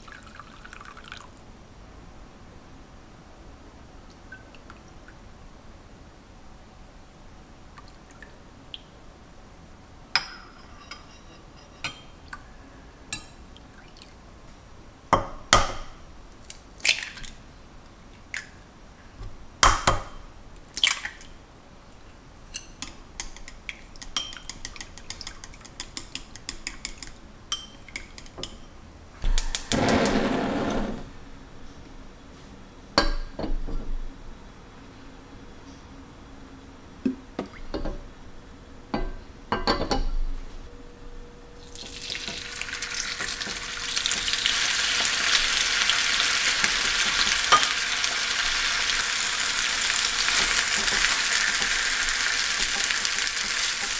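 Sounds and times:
spoon clinking against bowls: 22.5s - 28.7s
gas burner lighting: 29.2s - 31.1s.

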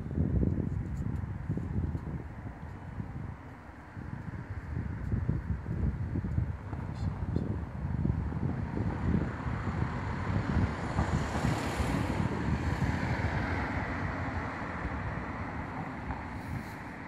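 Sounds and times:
steady rushing noise: 0.0s - 17.0s
wind buffeting microphone: 0.0s - 17.0s.

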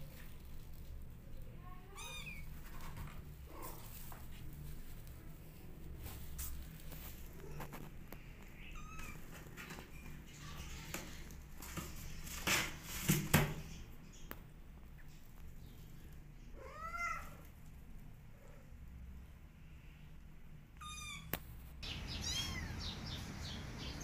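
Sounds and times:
rustling scrapes: 0.0s - 13.8s
kitten meowing: 1.9s - 2.5s, 20.8s - 21.4s, 22.1s - 23.0s.

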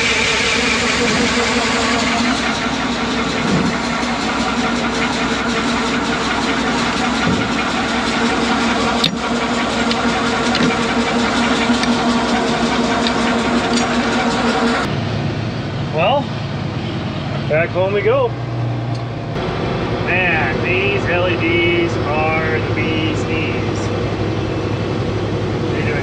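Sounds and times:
auger turning: 0.0s - 14.9s
engine drone: 0.0s - 26.0s.

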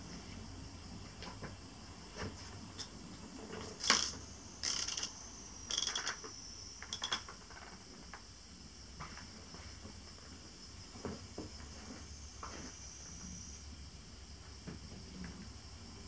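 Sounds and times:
insects chirring: 2.7s - 14.6s.

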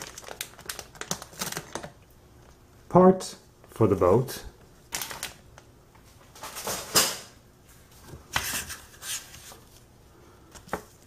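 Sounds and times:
plastic bags and paper crinkling: 0.0s - 2.0s, 4.9s - 5.4s.

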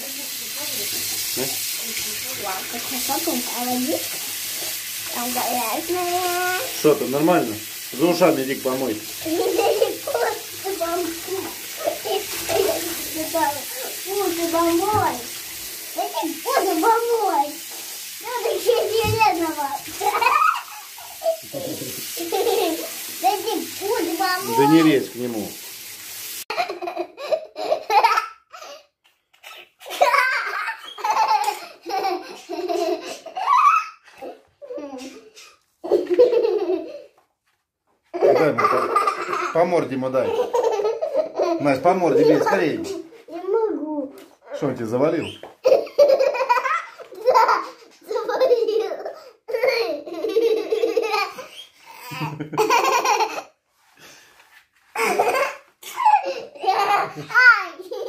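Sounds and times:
girl laughing and giggling: 29.4s - 37.1s, 45.6s - 53.5s, 55.0s - 58.0s.

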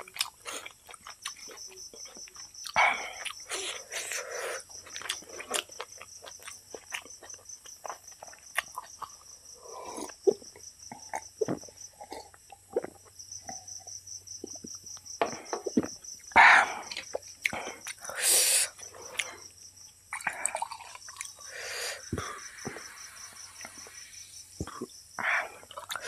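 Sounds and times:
wet chewing and lip smacks: 0.0s - 9.2s, 20.2s - 21.5s
crickets chirping: 0.0s - 26.0s.

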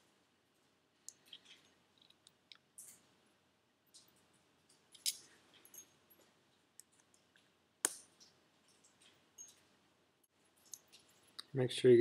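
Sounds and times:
small metal parts clicking: 3.9s - 6.2s, 10.5s - 11.4s.

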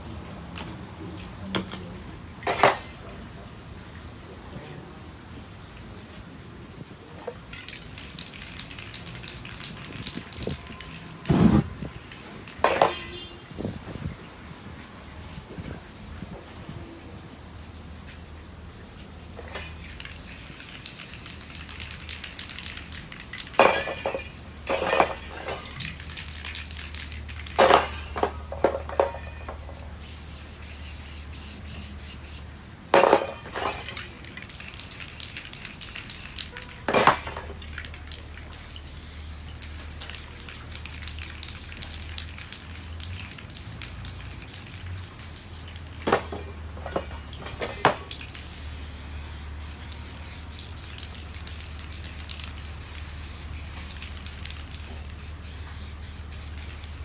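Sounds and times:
spray-paint cans hissing: 7.4s - 13.1s, 19.4s - 57.0s
metallic clinks of cans knocking: 19.4s - 29.7s, 33.0s - 37.9s, 45.6s - 48.5s.

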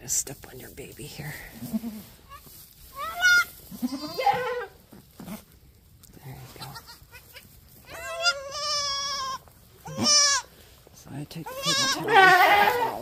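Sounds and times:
goats bleating: 1.5s - 5.4s, 6.5s - 10.5s, 11.4s - 13.0s.

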